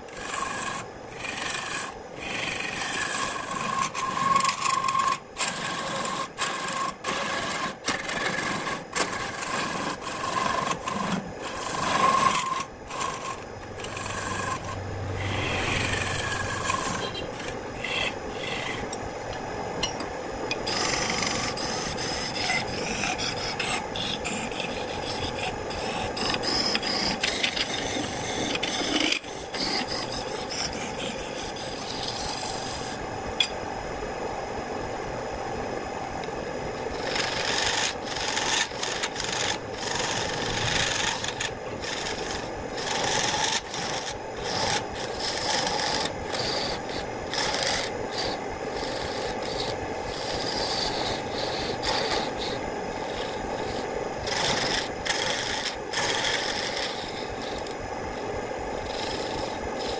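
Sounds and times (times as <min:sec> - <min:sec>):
wood lathe spinning: 0:00.0 - 0:19.0, 0:20.5 - 0:33.0, 0:36.8 - 0:59.9
turning tool scraping wood: 0:00.1 - 0:19.0, 0:20.5 - 0:33.0, 0:36.8 - 0:59.9.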